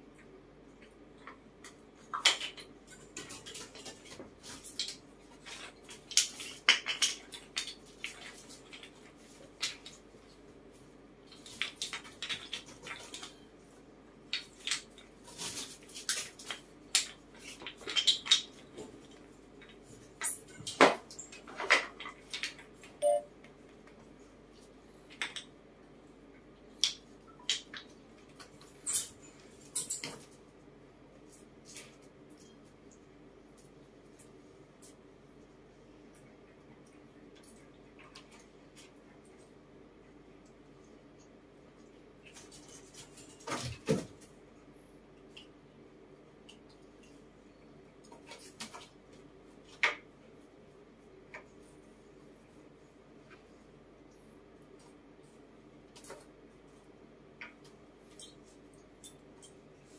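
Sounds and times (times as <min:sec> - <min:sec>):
wooden tiles clacking and tapping: 0:04.7 - 0:10.0.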